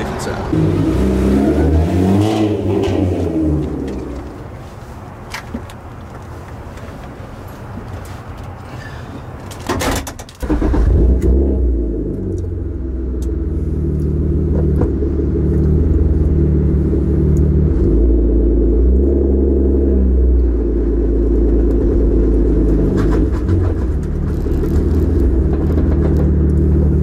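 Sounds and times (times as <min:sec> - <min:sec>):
car engine starting and idling: 0:00.0 - 0:06.4, 0:09.5 - 0:27.0
starter clatter: 0:22.9 - 0:27.0.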